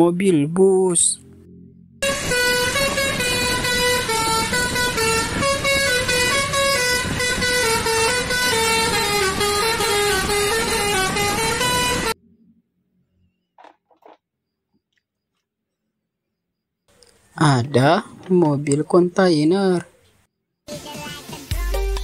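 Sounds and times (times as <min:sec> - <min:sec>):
musical air horn tune: 0:02.0 - 0:12.2.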